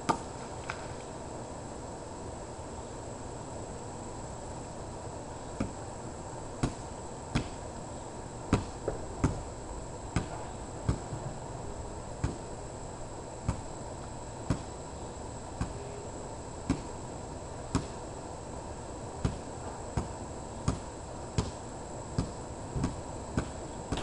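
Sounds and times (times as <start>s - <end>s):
faint high whine: 0.0s - 24.0s
low background noise: 0.0s - 24.0s.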